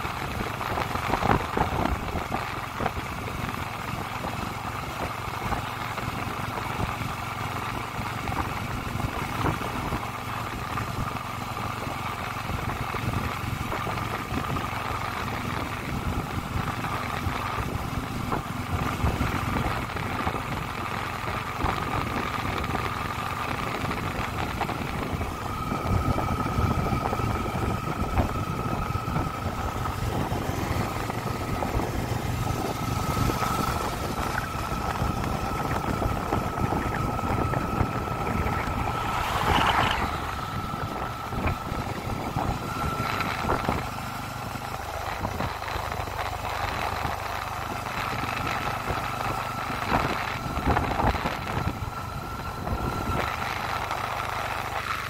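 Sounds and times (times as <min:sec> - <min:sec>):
motorcycle engine running: 0:00.0 - 0:55.0
road and wind noise: 0:00.0 - 0:55.0
high whine: 0:21.7 - 0:55.0
rush of noise: 0:23.6 - 0:48.5.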